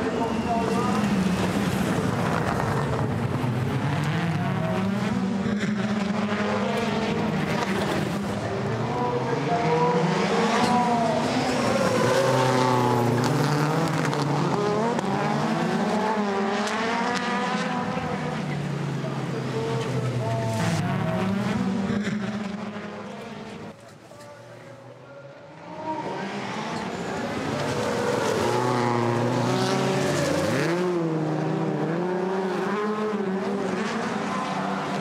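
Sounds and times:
race car engines accelerating: 0.0 - 35.0.

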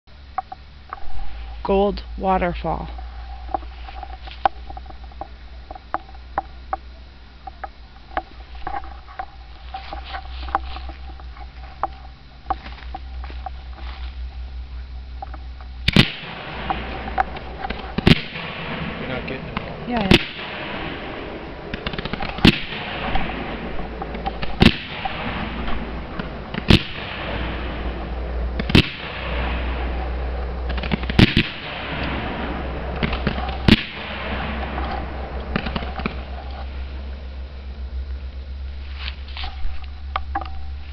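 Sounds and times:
crackling hiss: 0.0 - 40.9
firework shells bursting: 15.2 - 38.4
faint firework pops: 15.8 - 21.1, 21.7 - 27.8, 28.6 - 29.9.

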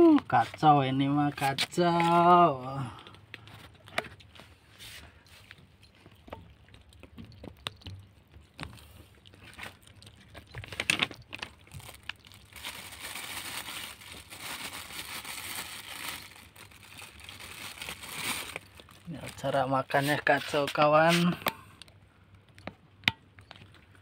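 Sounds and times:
cats chewing: 3.0 - 14.3
paper crinkling and rustling: 9.4 - 21.2.

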